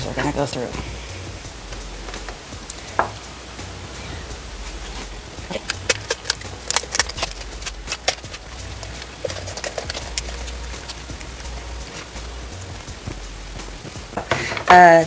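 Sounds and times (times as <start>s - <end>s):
shears snapping through bones: 5.0s - 12.4s.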